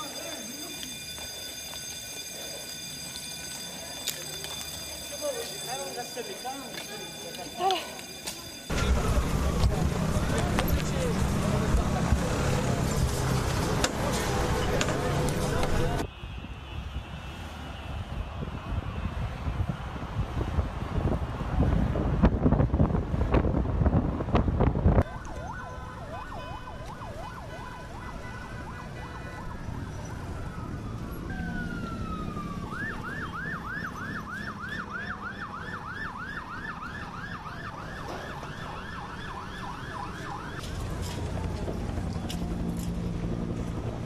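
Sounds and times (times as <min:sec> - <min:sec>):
sirens wailing: 0:00.0 - 0:16.1, 0:25.0 - 0:44.0
wind buffeting microphone: 0:17.8 - 0:27.1
siren yelping: 0:25.0 - 0:40.7.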